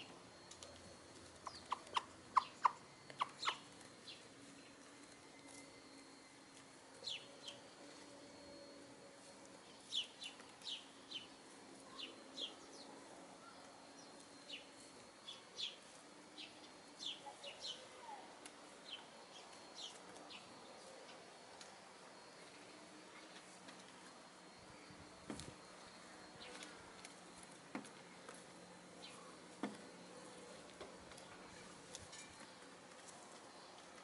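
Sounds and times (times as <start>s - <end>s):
birds chirping: 0.0s - 6.3s, 6.9s - 7.8s, 9.6s - 18.0s, 18.7s - 21.3s, 24.7s - 32.7s
faint low hum: 0.0s - 34.0s.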